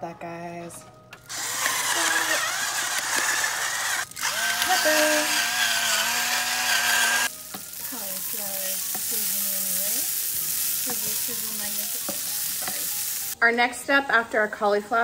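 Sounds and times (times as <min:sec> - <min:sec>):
pepper grinder grinding: 0:01.2 - 0:13.3
vegetables sizzling in a pan: 0:04.1 - 0:13.4.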